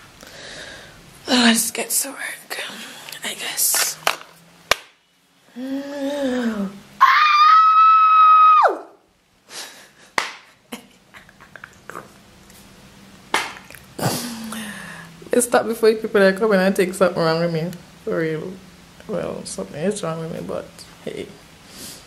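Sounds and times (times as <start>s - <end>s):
woman screaming: 7.0s - 9.0s.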